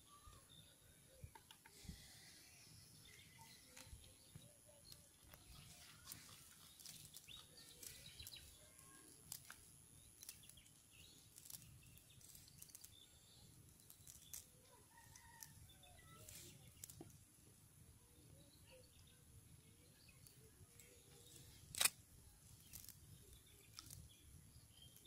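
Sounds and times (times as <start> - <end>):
bird chirps: 0.0 - 17.0
fishing net rustling: 5.6 - 8.5.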